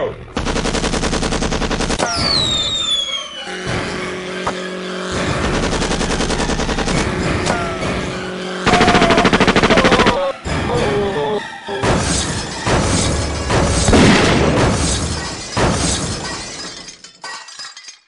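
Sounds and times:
machine-gun fire: 0.4s - 2.9s, 5.2s - 7.4s, 8.6s - 10.2s, 13.6s - 16.2s
falling whistle: 2.0s - 3.8s
explosion blasts: 11.8s - 16.2s.

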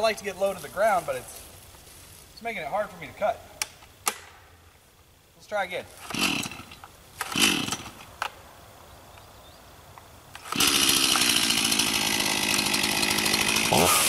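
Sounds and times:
chainsaw running and revving: 6.0s - 8.0s, 10.4s - 14.0s.

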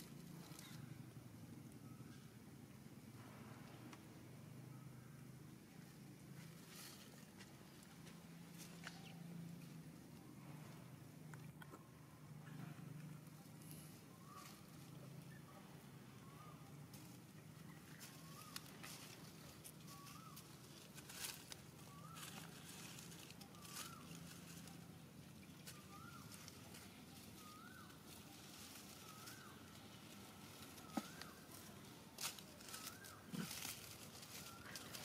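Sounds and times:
rustling in dry leaves: 5.7s - 10.2s, 13.3s - 15.4s, 16.0s - 35.0s.

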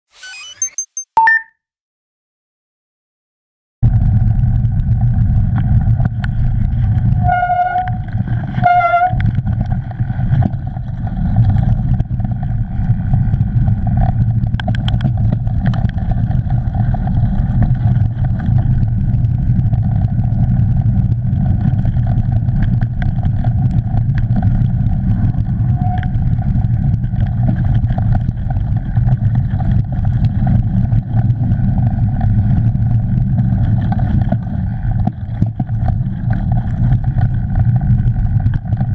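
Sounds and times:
short high tones: 0.1s - 1.5s
bike tyre rumble on dirt: 3.8s - 38.9s
wind noise: 3.8s - 38.9s.

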